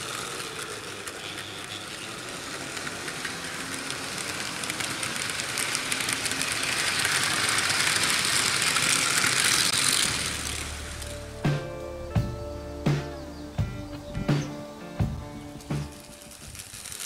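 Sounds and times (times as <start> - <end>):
model train coaches rolling: 0.0 - 12.1, 14.8 - 17.0
music: 10.1 - 17.0.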